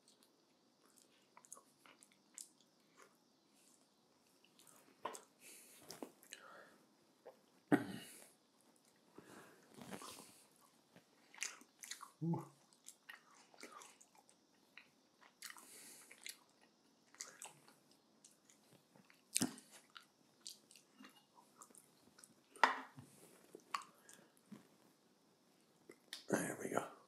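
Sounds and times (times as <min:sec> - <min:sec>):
chewing with wet mouth clicks: 0:00.0 - 0:03.1, 0:11.2 - 0:22.4.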